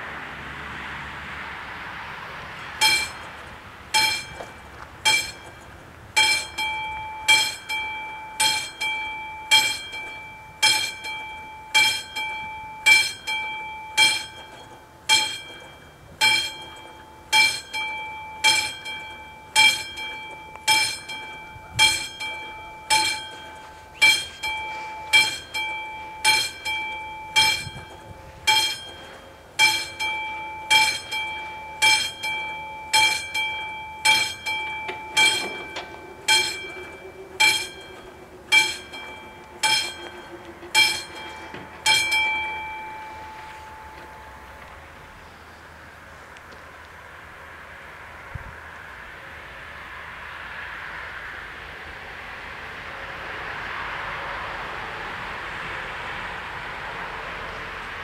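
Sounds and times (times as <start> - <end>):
level crossing bells ringing: 2.7 - 45.6.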